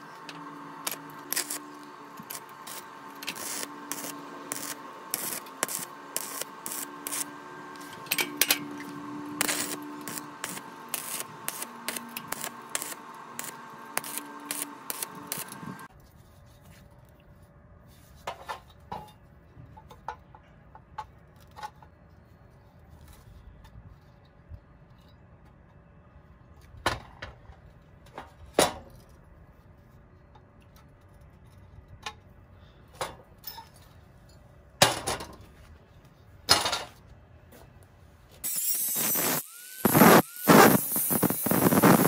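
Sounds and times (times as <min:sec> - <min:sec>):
steady hum: 0:00.0 - 0:15.9, 0:38.4 - 0:42.0
welding arc crackling: 0:00.0 - 0:15.9, 0:38.4 - 0:42.0.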